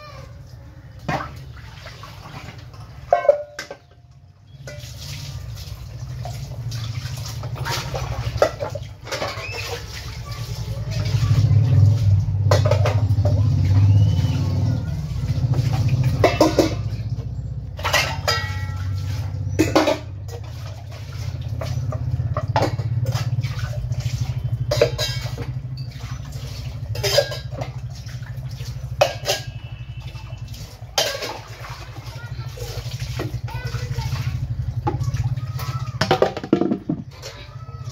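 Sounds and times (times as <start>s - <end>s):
steel utensils clinking: 3.1s - 3.9s, 4.5s - 5.3s, 15.5s - 20.5s, 21.4s - 28.1s, 28.7s - 31.7s.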